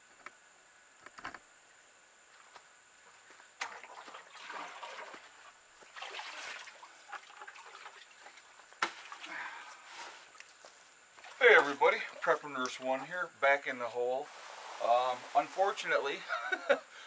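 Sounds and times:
water sloshing and splashing: 3.6 - 12.4.

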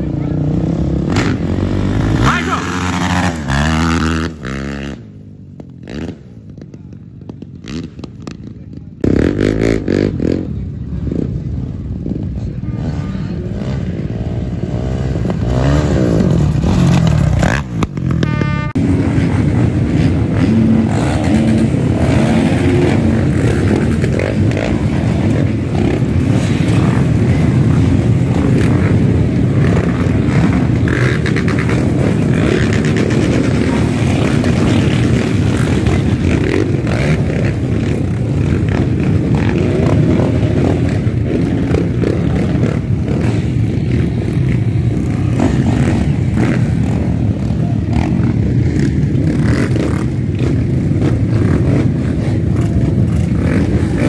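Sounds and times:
dirt-bike engines revving: 0.0 - 54.0.

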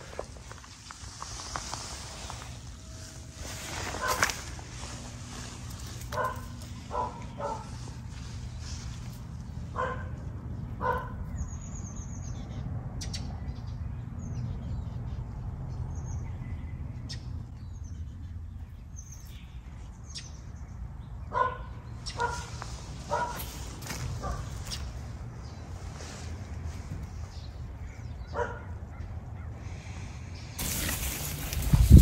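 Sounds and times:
steady low hum: 0.0 - 12.8
small birds chirping: 0.0 - 32.0
dog barking: 6.1 - 7.8, 9.7 - 10.2, 10.8 - 11.3, 21.3 - 23.5, 24.2 - 24.6, 28.3 - 29.1.

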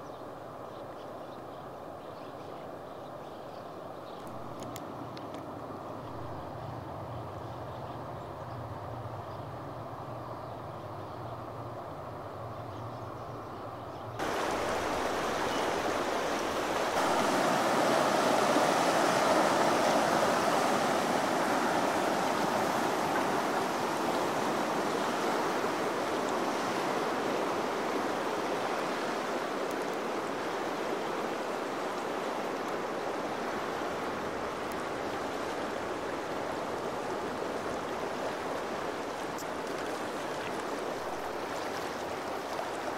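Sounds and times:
river rushing: 14.2 - 42.9.

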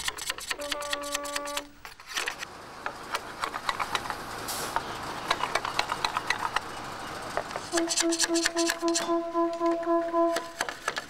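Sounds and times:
machete scraping bamboo pole: 0.0 - 2.5, 7.6 - 11.0.

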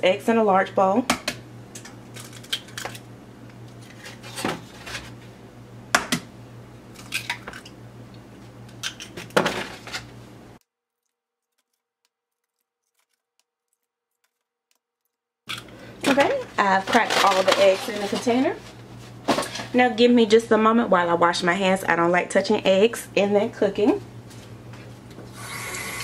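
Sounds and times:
eggs cracking into bowl: 6.9 - 9.4, 10.9 - 16.4.

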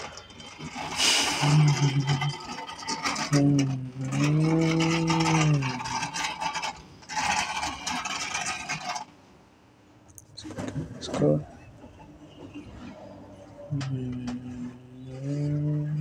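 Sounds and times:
toy truck rolling and scraping: 0.0 - 9.2
low voice-like hum: 1.3 - 2.5, 3.3 - 6.0, 10.4 - 16.0.

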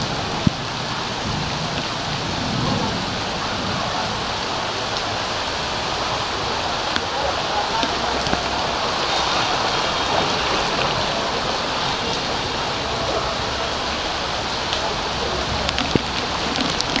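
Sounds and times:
heavy rain on a flooded street: 0.0 - 17.0.

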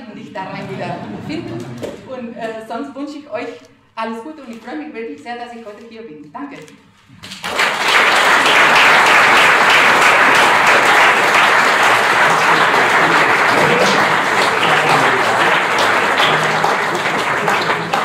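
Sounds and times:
voices: 0.0 - 3.5, 12.2 - 18.0
audience clapping: 7.2 - 18.0.

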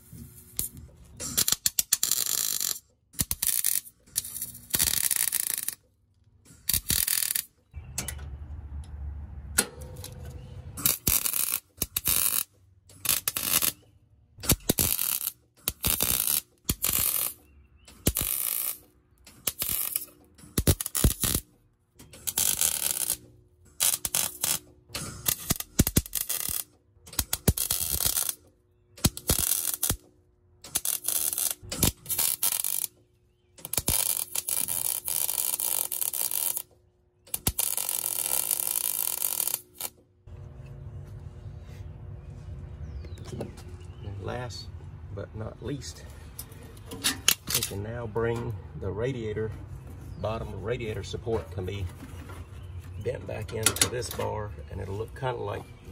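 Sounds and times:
welding arc crackle: 0.0 - 5.8, 6.6 - 7.5, 10.8 - 13.8, 14.4 - 21.5, 22.2 - 30.1, 30.7 - 33.0, 33.6 - 36.7, 37.3 - 40.0.

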